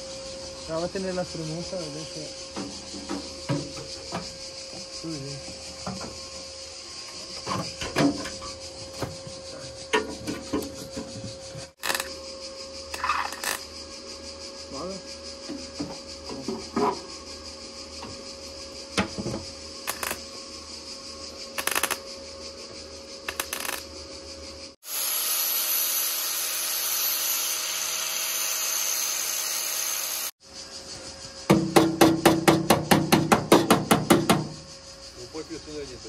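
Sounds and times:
power tool running: 24.8 - 30.4
knocks and taps on sheet metal: 31.5 - 34.5.

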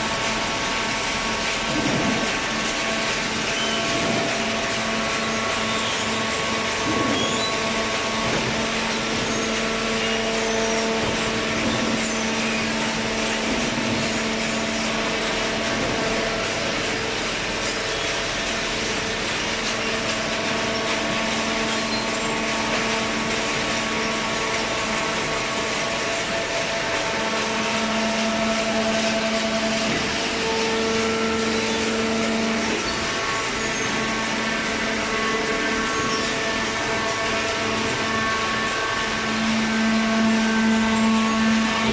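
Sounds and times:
machine drone with held tones: 20.4 - 41.9.

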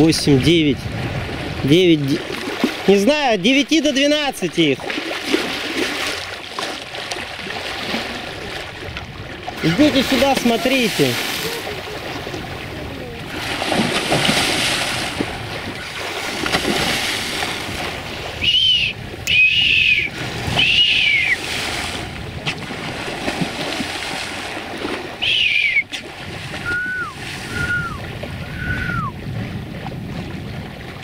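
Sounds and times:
water splashing along hull: 0.0 - 31.0
short falling whistles: 18.4 - 21.4, 25.2 - 25.9, 26.6 - 28.0, 28.6 - 29.1.

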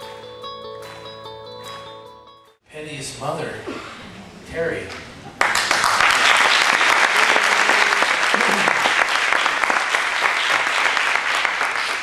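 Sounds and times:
congregation applauding: 5.3 - 12.0.

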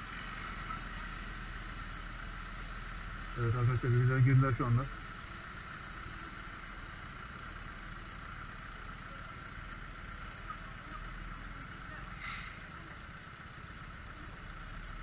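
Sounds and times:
traffic on a wet road: 0.0 - 15.0
short hiss: 12.2 - 12.7.

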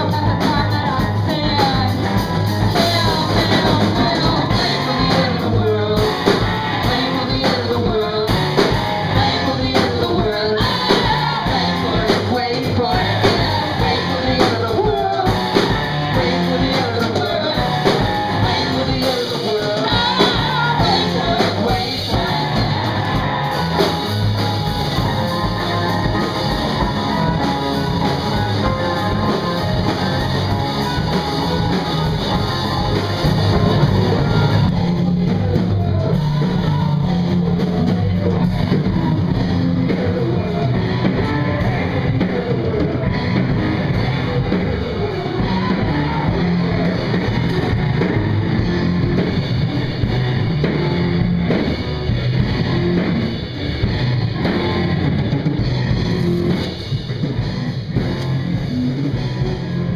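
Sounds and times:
person singing: 0.0 - 49.4
bass guitar: 0.0 - 59.9
drum kit: 0.0 - 59.9
electric guitar: 0.0 - 59.9.

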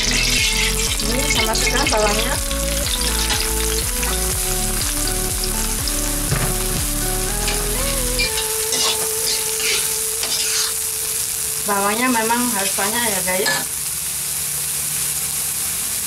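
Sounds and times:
background music: 0.0 - 10.9
onions sizzling in oil: 0.0 - 16.0
metal spatula scraping wok: 7.4 - 10.8.

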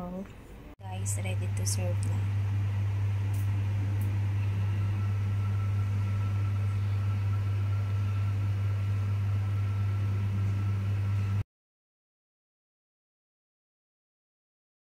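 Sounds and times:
low machine hum: 0.0 - 11.4
faint thin whine: 0.9 - 11.4.

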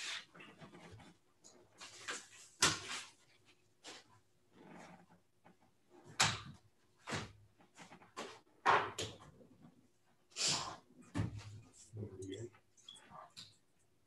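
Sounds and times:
objects knocking and clattering: 5.4 - 9.8.

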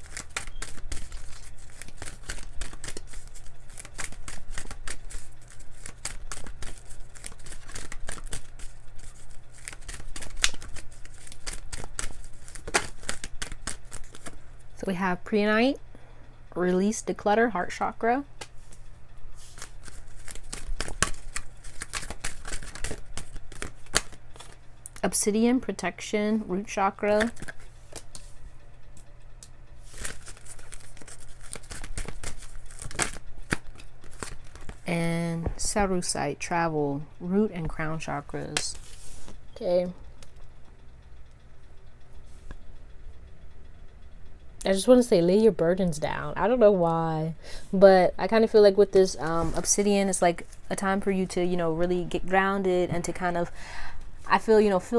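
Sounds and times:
cards being shuffled by hand: 0.0 - 14.4, 19.4 - 25.0, 27.1 - 28.4, 29.8 - 34.9, 38.5 - 39.4, 49.0 - 52.1.

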